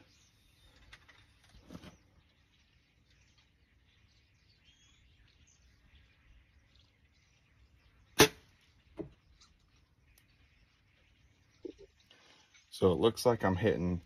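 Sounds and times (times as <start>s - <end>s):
arrow thud into target: 8.2s - 8.4s.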